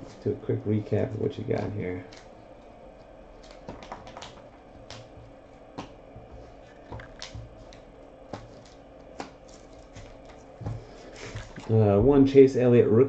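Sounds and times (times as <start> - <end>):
trading cards clicking and tapping: 3.4 - 12.2.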